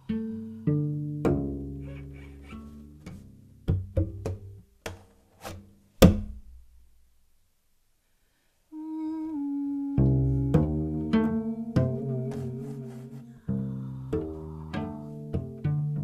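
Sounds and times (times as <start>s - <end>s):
cello plucked and struck notes: 0.0s - 4.6s, 9.8s - 16.0s
held cello note: 8.8s - 16.0s.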